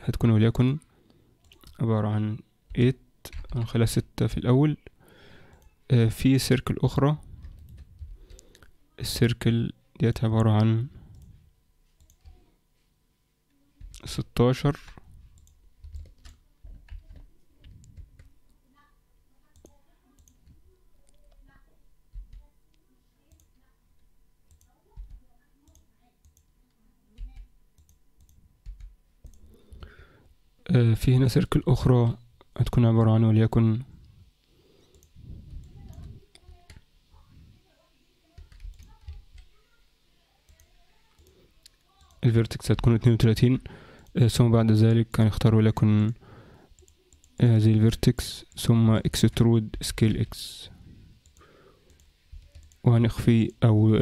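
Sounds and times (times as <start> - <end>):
faint computer mouse clicks: 51.2 - 52.8.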